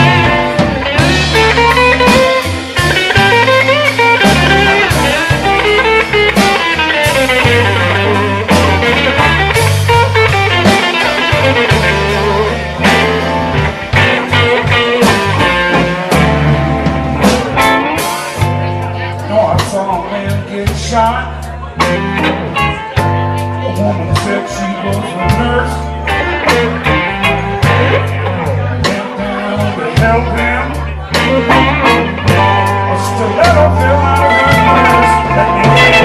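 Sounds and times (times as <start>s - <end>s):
drums with cymbal crashes: 0.0s - 18.6s
electric guitar bending notes: 0.0s - 21.0s, 21.7s - 36.0s
bass: 0.0s - 36.0s.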